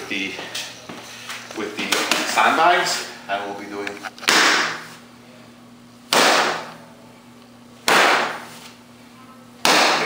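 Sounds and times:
hand slapping a canvas sandbag: 7.9 - 8.5.

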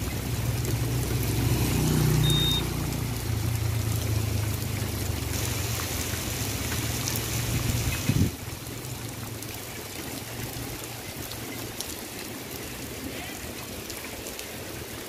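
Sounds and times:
low engine hum: 0.0 - 7.8
rain falling on wet road: 0.0 - 15.0.

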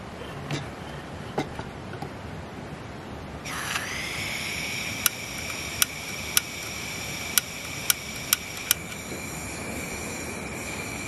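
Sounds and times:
gas camping stove hissing: 3.5 - 11.0
piezo igniter snapping: 4.9 - 9.0.

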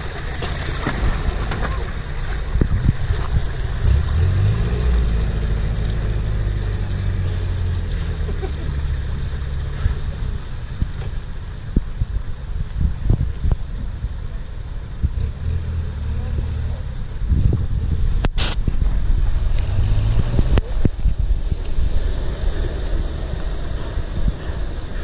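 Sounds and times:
pickup engine revving: 0.0 - 11.0, 15.0 - 25.0
water washing around wheels: 0.0 - 25.0.

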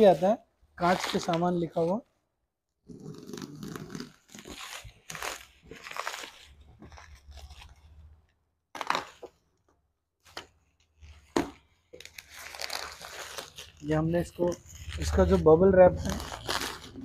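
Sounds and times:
bubble wrap rustling and crinkling: 0.0 - 2.0, 3.0 - 9.5, 10.2 - 17.0
bubble wrap snapping: 3.2 - 9.5, 10.2 - 17.0.

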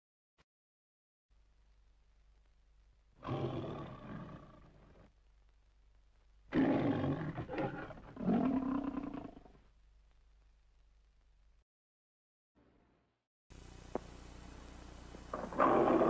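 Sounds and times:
faint low hum: 1.3 - 8.2, 12.6 - 16.0
lion roaring: 3.2 - 5.1, 6.5 - 9.6, 15.3 - 16.0.

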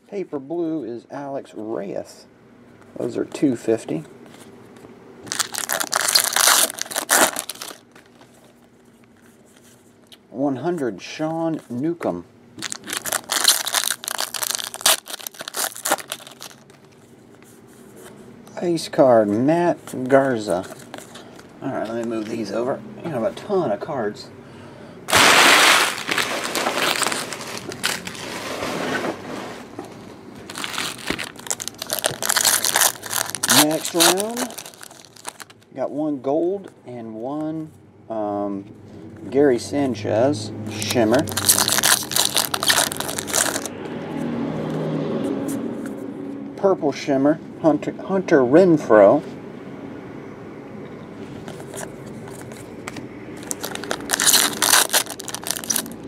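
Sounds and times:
foil wrapper crinkling: 5.2 - 8.2, 12.6 - 17.0, 25.1 - 28.4, 30.4 - 35.7, 40.8 - 43.7, 53.4 - 56.0.

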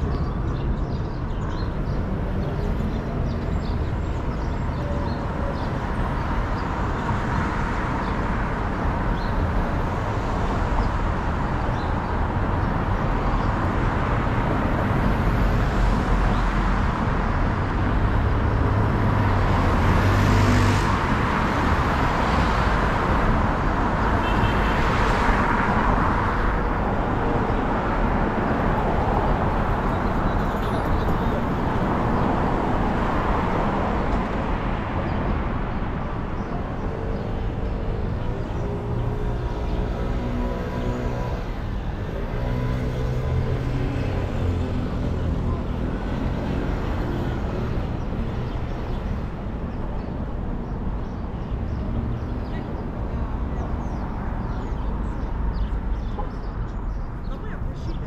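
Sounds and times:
cars driving past: 12.2 - 56.7.

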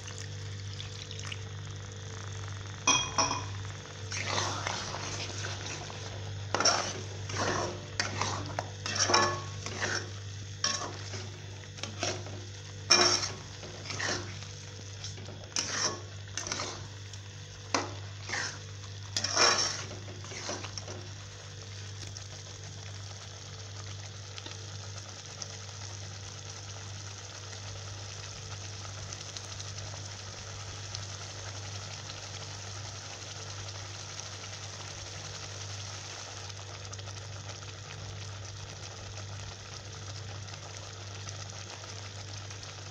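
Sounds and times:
low steady hum: 0.0 - 26.1
gravy sizzling: 0.0 - 42.9
spoon scraping metal pot: 6.5 - 10.1, 10.7 - 14.4, 15.1 - 16.9, 19.2 - 20.9.

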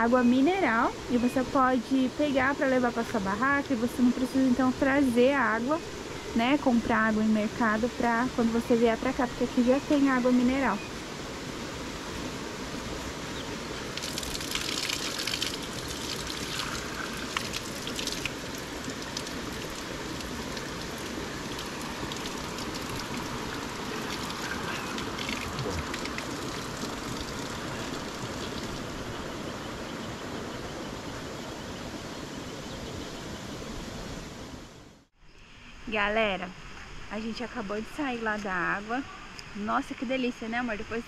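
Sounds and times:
running water: 0.0 - 31.3
water splashes: 7.7 - 29.4.

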